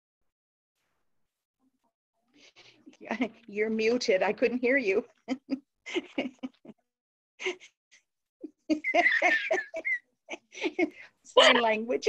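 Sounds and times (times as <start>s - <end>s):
people speaking: 2.6s - 6.6s, 10.6s - 12.0s
people laughing over video call: 4.6s - 7.8s, 8.4s - 11.8s.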